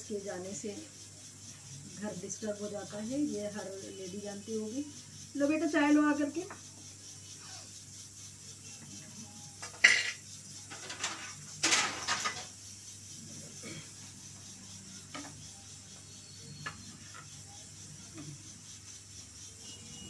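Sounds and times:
mugs clinking on a plate: 0:09.6 - 0:10.2
crockery clattering: 0:09.6 - 0:12.5.

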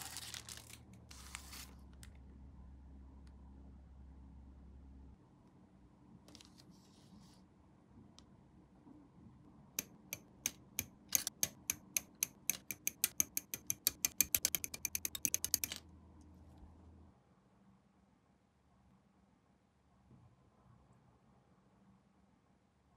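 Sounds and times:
sharp clicks: 0:09.8 - 0:15.8.

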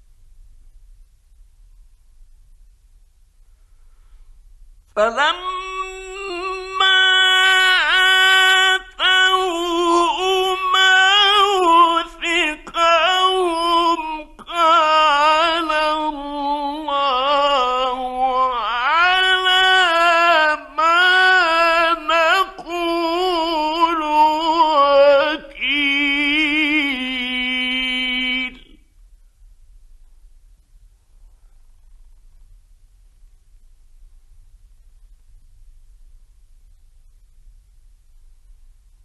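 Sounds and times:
man chanting melodically: 0:05.0 - 0:28.8.

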